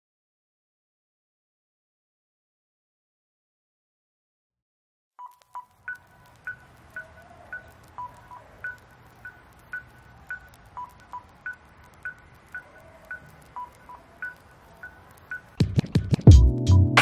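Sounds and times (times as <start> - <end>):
short electronic beeps: 8.0 - 15.5.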